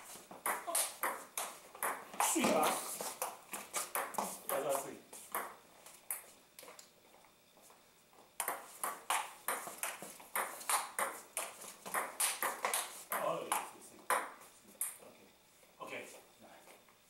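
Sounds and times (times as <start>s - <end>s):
table tennis ball clicking: 8.4s - 15.0s.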